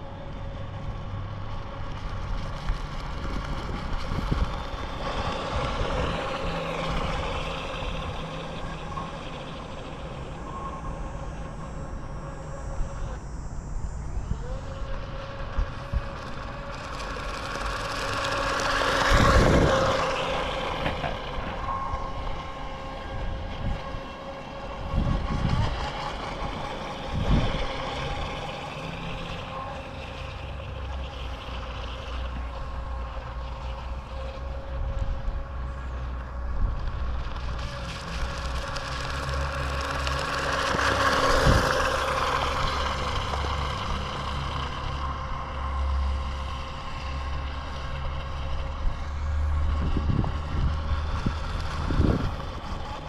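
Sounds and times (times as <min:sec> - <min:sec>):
toy jet boat motor whining: 0:00.0 - 0:53.0
wind buffeting microphone: 0:02.9 - 0:29.5, 0:39.6 - 0:45.7, 0:47.2 - 0:53.0.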